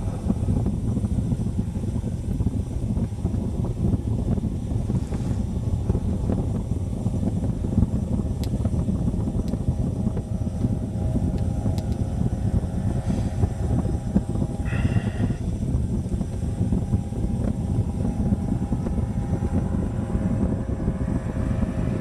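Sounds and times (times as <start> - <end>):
distant engine hum: 0.0 - 22.0
wind buffeting microphone: 0.0 - 22.0.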